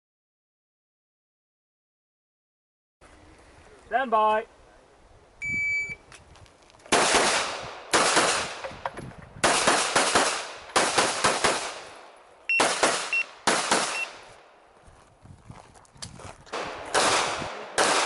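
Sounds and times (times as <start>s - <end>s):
handgun shots echoing: 12.6s - 14.2s, 16.5s - 18.0s.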